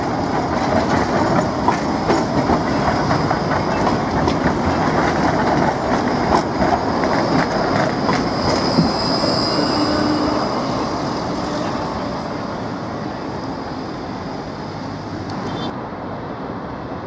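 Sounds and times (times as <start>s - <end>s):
wheels clicking over track joints: 0.0s - 9.3s
tram wheels rumbling on rails: 0.0s - 17.0s
high wheel squeal: 7.4s - 15.7s.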